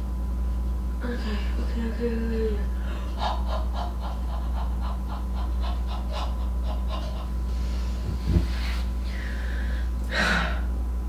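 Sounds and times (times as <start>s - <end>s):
woman panting: 2.7s - 3.7s.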